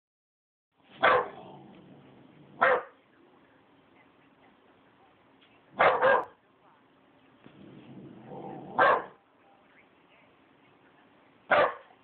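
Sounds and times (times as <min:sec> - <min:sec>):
puppy barking: 0:01.0 - 0:01.7, 0:02.5 - 0:03.0, 0:05.8 - 0:06.4, 0:08.5 - 0:09.2, 0:11.5 - 0:12.0.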